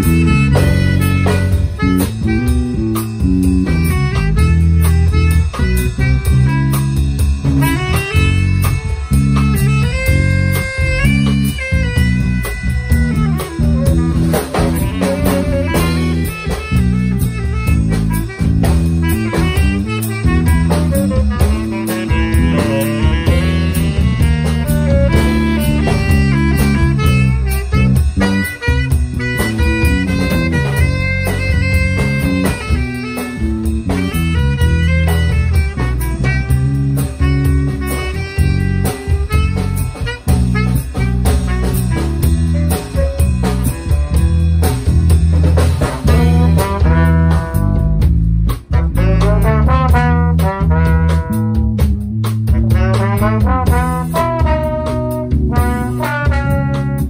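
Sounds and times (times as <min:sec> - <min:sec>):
drum kit with cymbals: 0:00.0 - 0:57.0
electric bass line: 0:00.0 - 0:57.0
saxophone: 0:00.0 - 0:57.0.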